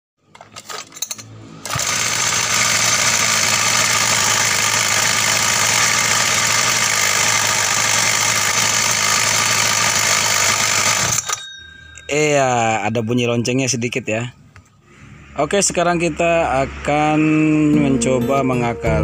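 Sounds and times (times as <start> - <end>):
small two-stroke engine idling: 1.6 - 11.4
light metallic jingle: 11.2 - 14.0.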